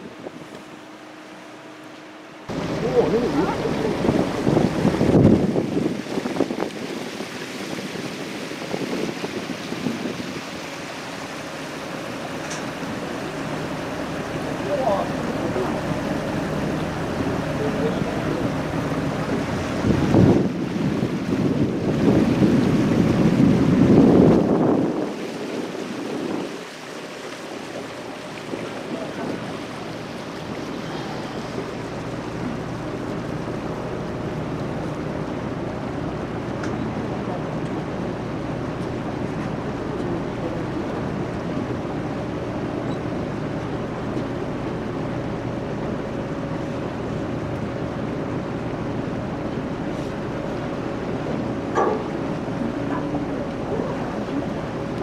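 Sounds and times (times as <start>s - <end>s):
boat diesel engines running: 0.0s - 55.0s
water washing along hull: 0.0s - 55.0s
wind buffeting microphone: 2.5s - 39.8s.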